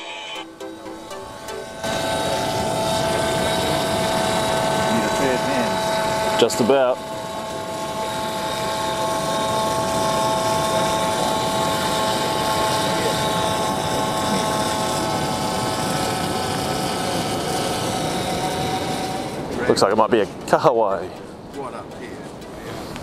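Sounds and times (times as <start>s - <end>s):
electric fishing reel motor whining: 0.0s - 21.2s.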